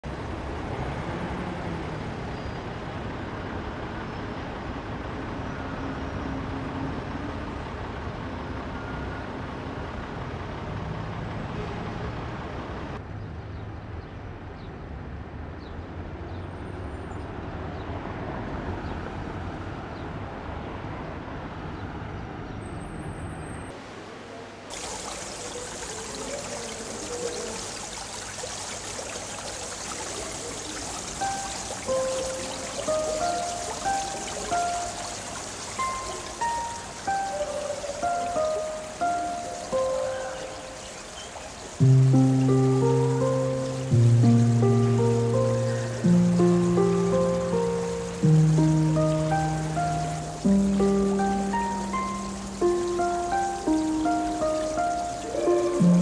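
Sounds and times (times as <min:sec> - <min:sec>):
city street traffic: 0:00.0 - 0:56.0
vehicles passing: 0:00.0 - 0:56.0
rushing water: 0:23.8 - 0:56.0.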